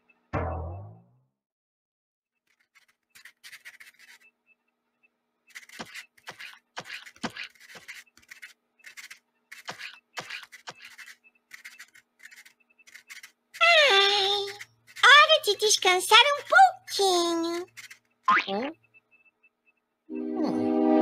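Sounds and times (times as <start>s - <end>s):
pencil scratching on paper: 2.5s - 4.3s, 5.5s - 16.4s, 17.4s - 18.0s.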